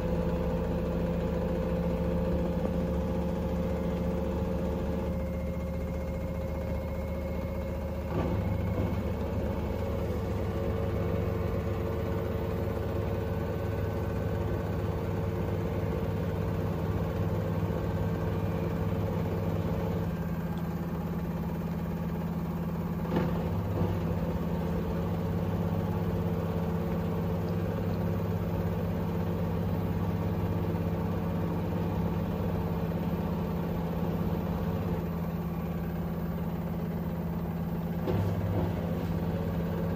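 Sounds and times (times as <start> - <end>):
washing machine spinning: 0.0 - 39.9.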